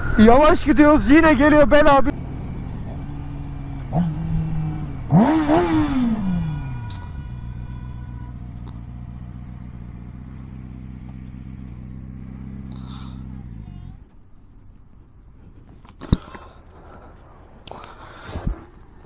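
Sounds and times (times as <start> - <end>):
motorcycle engine revving: 2.1 - 17.2
motorcycle engine idling: 2.1 - 18.2.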